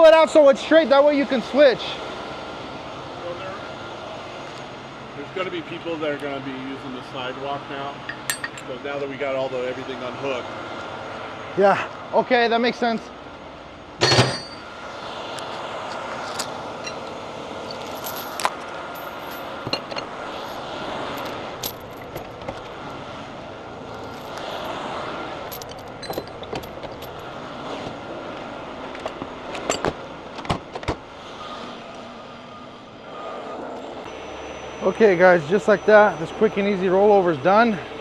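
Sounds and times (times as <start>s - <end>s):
metallic clinks and jingles: 8.1s - 8.7s, 16.3s - 20.1s, 21.2s - 22.4s, 25.4s - 27.2s
heavy truck engine running: 13.1s - 38.0s.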